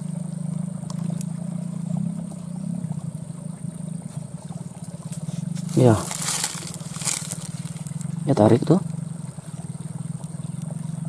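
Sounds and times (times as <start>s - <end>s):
small engine running: 0.0s - 11.0s.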